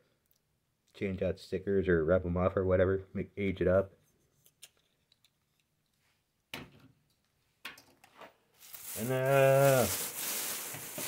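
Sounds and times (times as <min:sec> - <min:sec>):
plastic bag rustling: 0:08.6 - 0:11.0
man's drawn-out vocal sound: 0:09.0 - 0:10.0.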